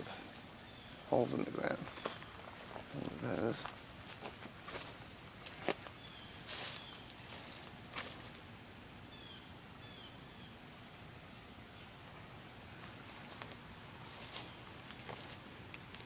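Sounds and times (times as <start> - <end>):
insect trilling: 0.0 - 16.0
bird chirps: 0.2 - 3.4, 6.0 - 7.3, 9.1 - 10.6
footsteps through grass: 1.8 - 8.4, 12.8 - 16.0.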